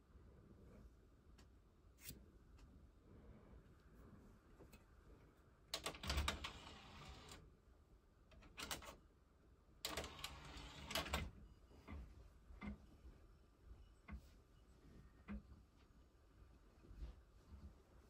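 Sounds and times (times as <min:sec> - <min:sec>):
disc player reading ticks: 0:09.9 - 0:11.3
disc tray mechanism whirring: 0:09.9 - 0:11.3.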